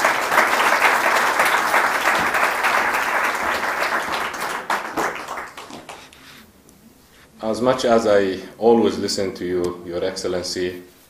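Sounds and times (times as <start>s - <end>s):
audience applause: 0.0s - 6.2s.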